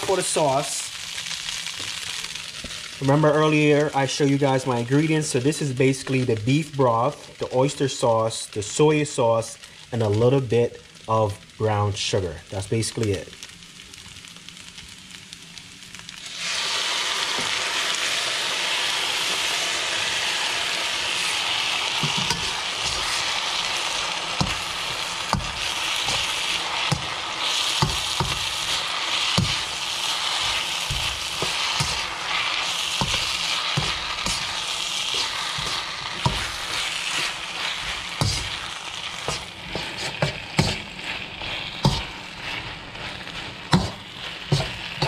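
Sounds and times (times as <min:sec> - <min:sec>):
food sizzling in a pan: 0:00.0 - 0:45.0
stirring knocks: 0:22.0 - 0:23.3, 0:41.8 - 0:42.8, 0:43.4 - 0:45.0.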